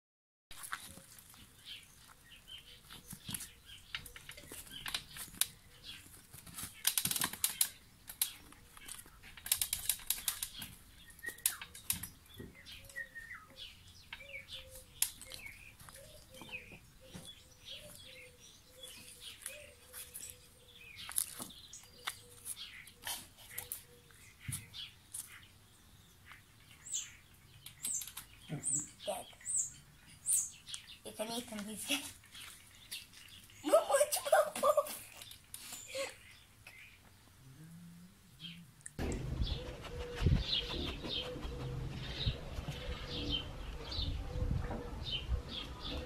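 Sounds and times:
puppy claws scratching on concrete: 0:03.1 - 0:12.1.

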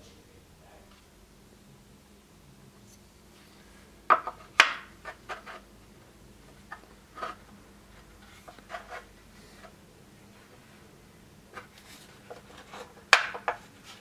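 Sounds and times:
wooden pieces knocking together: 0:04.1 - 0:05.6, 0:12.3 - 0:13.6.

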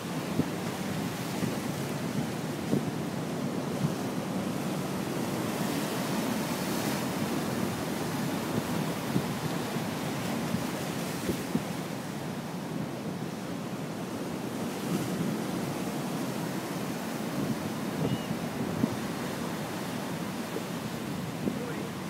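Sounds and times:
sea waves breaking on rocks: 0:14.1 - 0:22.0.

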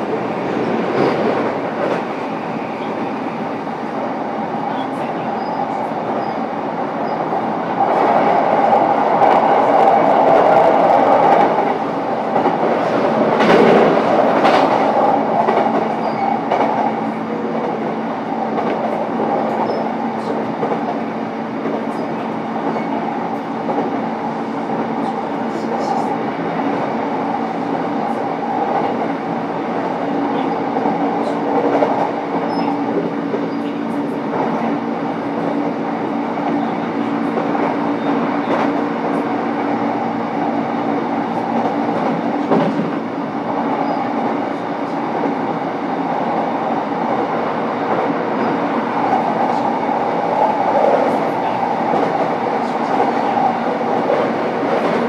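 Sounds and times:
train wheels on rail: 0:00.0 - 0:55.0
rail-joint clicks: 0:41.6 - 0:43.0.

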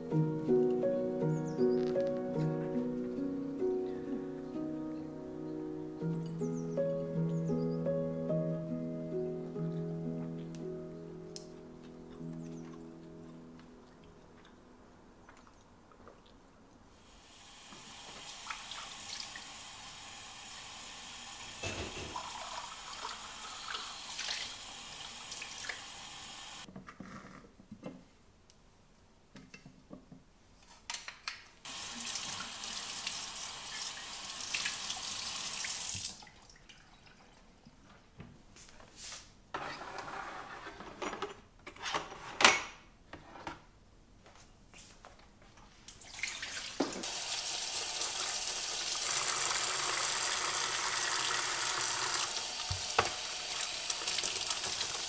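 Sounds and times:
tap running into sink: 0:21.6 - 0:22.6, 0:52.6 - 0:53.2.

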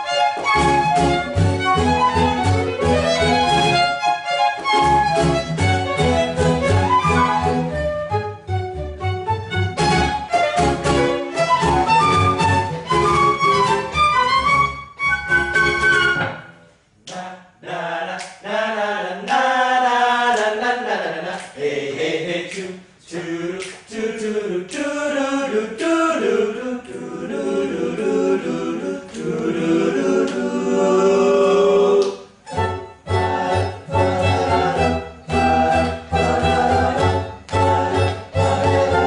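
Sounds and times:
band instruments playing: 0:00.0 - 0:16.5, 0:32.5 - 0:39.0
men singing a cappella: 0:17.1 - 0:32.3, 0:33.1 - 0:39.0.

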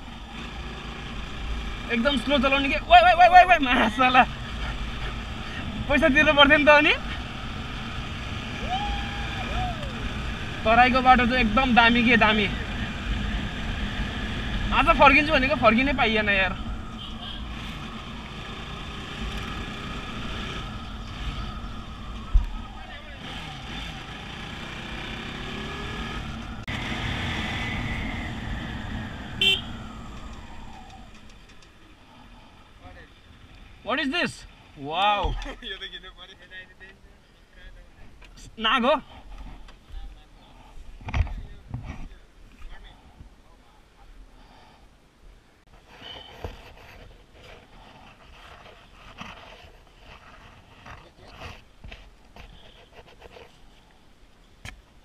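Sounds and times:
road and wind noise: 0:00.0 - 0:55.0
horn beep: 0:29.4 - 0:29.8.

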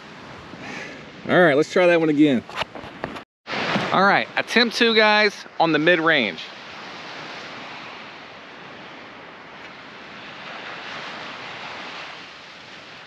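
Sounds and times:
wind: 0:00.0 - 0:13.0
surf washing onto beach: 0:03.5 - 0:13.0.

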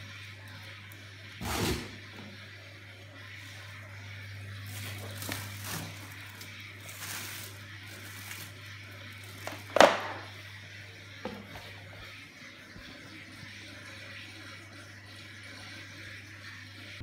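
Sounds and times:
low steady hum: 0:00.0 - 0:17.0
plastic wrapping rustling: 0:04.4 - 0:10.3.

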